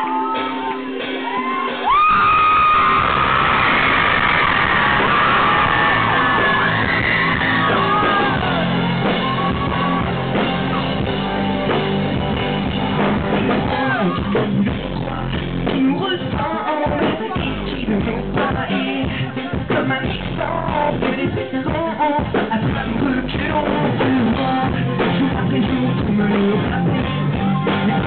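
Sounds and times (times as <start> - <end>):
crowd screaming: 0.0 - 14.6
live rock band playing: 0.0 - 28.0
man singing into microphone: 13.6 - 28.0.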